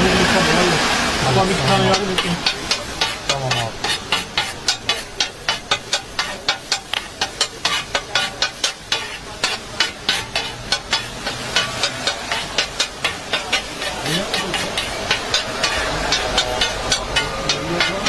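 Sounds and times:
food sizzling: 0:00.0 - 0:18.0
metal spatulas chopping on griddle: 0:01.6 - 0:18.0.

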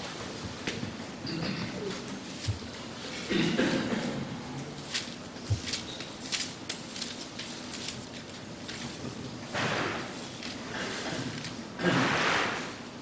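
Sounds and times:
person coughing: 0:03.3 - 0:04.3
thin pages rustling: 0:04.6 - 0:10.7.

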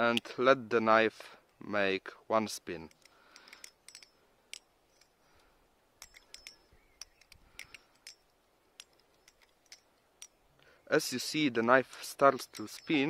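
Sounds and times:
butterfly knife clicking: 0:06.0 - 0:10.4.

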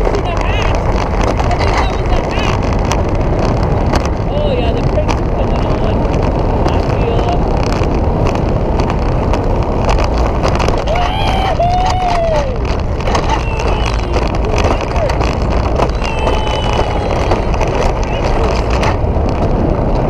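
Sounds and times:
sled wheels rumbling on rail: 0:00.0 - 0:20.0
wind buffeting camera: 0:00.0 - 0:20.0
gliding tones: 0:12.6 - 0:20.0.

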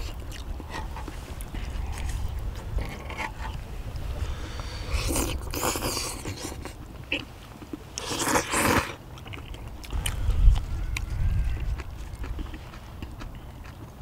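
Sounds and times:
chewing: 0:00.0 - 0:14.0
noodle slurping: 0:04.3 - 0:07.2, 0:08.0 - 0:09.0.

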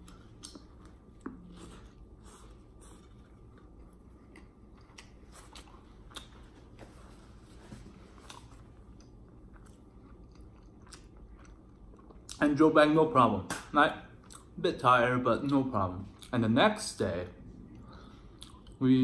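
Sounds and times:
person chewing: 0:00.0 - 0:06.7, 0:07.8 - 0:12.4, 0:14.1 - 0:14.6, 0:17.6 - 0:18.8.

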